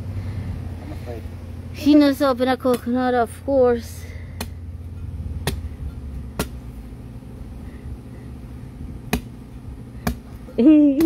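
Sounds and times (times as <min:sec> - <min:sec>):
machete chopping coconut husk: 0:02.6 - 0:03.1, 0:04.2 - 0:06.8, 0:09.0 - 0:11.0.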